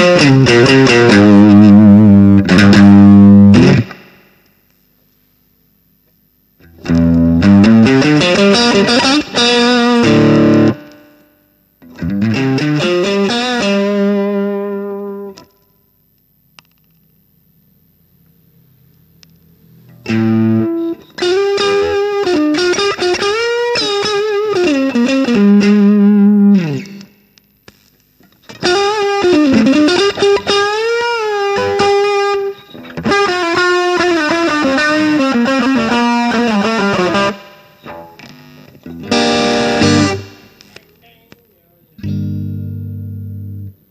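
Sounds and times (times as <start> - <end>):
distorted electric guitar lead: 0.0 - 4.3, 6.6 - 11.0, 11.8 - 15.6, 19.6 - 27.2, 28.4 - 41.4, 42.0 - 43.9.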